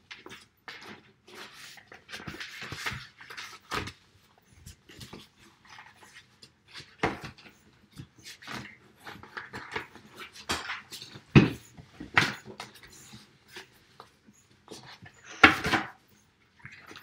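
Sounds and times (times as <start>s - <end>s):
puppy sniffing and breathing: 7.3s - 17.0s.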